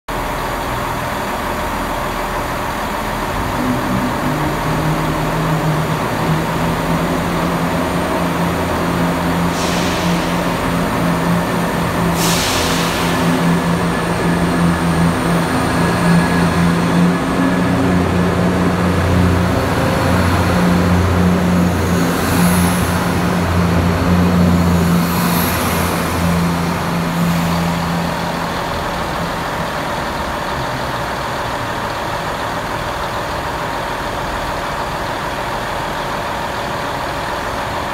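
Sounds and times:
train diesel engines droning: 0:00.1 - 0:37.9
short air hisses: 0:09.4 - 0:13.8.

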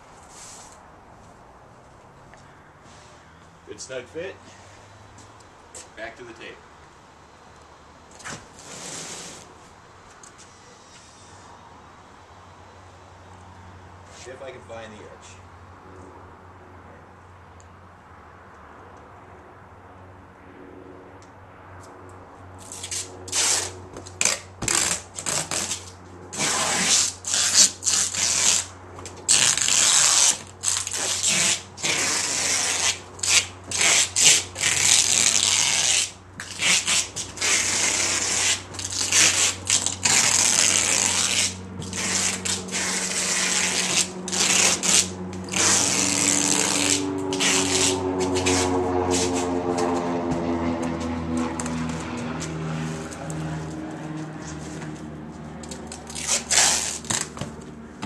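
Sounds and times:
vehicle engine: 0:00.0 - 0:58.0
packing tape pulled off roll: 0:22.6 - 0:28.7, 0:29.3 - 0:49.4, 0:55.6 - 0:57.4.

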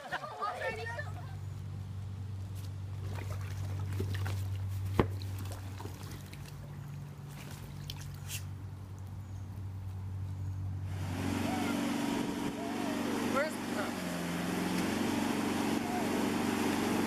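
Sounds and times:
water sloshing and trickling: 0:02.5 - 0:10.5.

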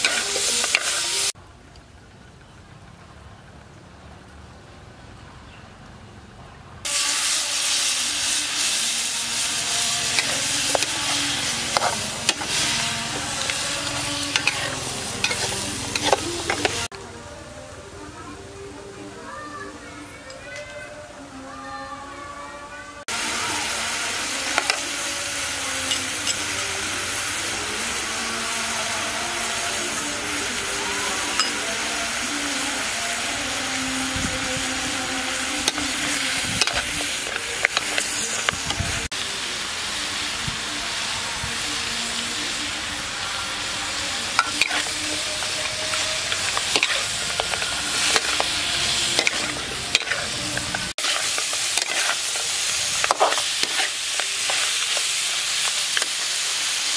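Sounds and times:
meat sizzling in a wok: 0:00.0 - 0:01.4, 0:06.8 - 0:17.0, 0:23.1 - 0:56.9
metal spatula scraping pan: 0:09.4 - 0:16.9, 0:44.4 - 0:55.1.

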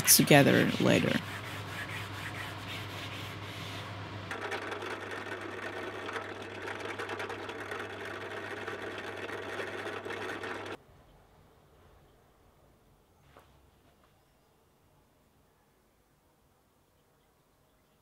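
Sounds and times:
drill press boring wood: 0:04.3 - 0:10.8.

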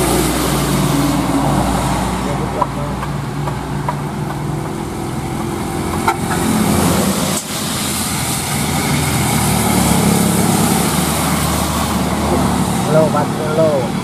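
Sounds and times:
diesel truck engines: 0:00.0 - 0:14.0
tyres hissing on wet road: 0:00.0 - 0:14.0
falling rain: 0:05.6 - 0:12.9.

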